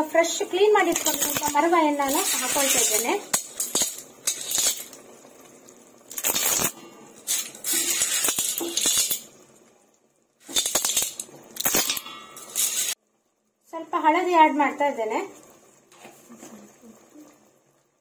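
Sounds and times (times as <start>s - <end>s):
clam shells clattering in a pot: 0.8s - 5.2s, 6.0s - 9.4s, 10.4s - 13.0s.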